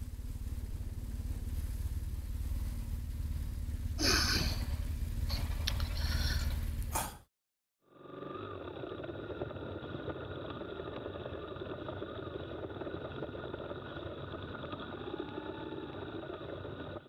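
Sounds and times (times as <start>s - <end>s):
motorcycle engine running: 0.0s - 7.3s, 8.0s - 17.0s.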